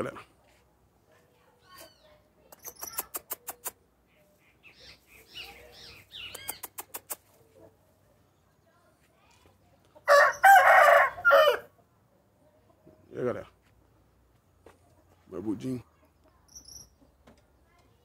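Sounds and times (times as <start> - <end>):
sharp clicks: 2.5 - 3.8, 6.3 - 7.2
rooster crowing loudly: 10.1 - 11.7.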